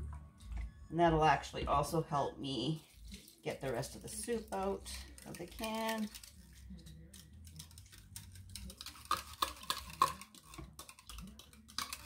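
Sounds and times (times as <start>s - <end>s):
utensil scraping tin can: 2.8s - 12.0s.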